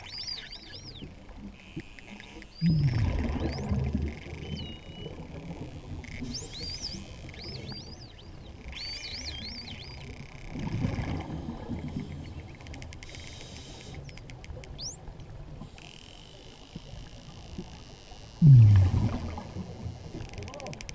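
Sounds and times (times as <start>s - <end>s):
whales whistling underwater: 2.1s - 10.1s, 18.4s - 20.2s
low rush of noise: 18.4s - 19.6s.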